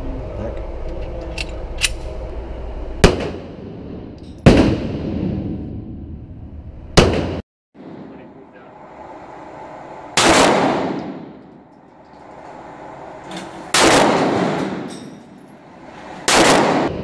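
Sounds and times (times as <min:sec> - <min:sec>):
pistol shots echoing: 0:16.3 - 0:17.0.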